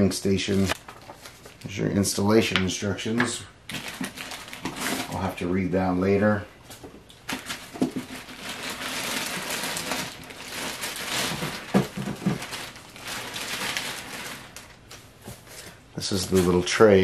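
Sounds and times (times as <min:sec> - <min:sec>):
plastic wrapping crinkling: 0:00.5 - 0:01.9, 0:03.7 - 0:05.4, 0:07.1 - 0:17.0
plastic knocks: 0:11.3 - 0:12.6.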